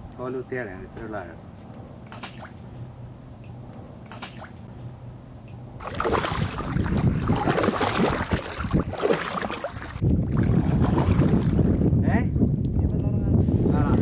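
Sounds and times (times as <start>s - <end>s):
water sloshing and splashing: 5.8s - 11.8s.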